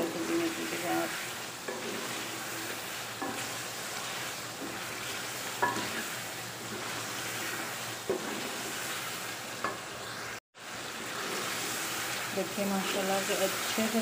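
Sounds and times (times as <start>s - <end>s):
chicken masala sizzling in oil: 0.0s - 14.0s.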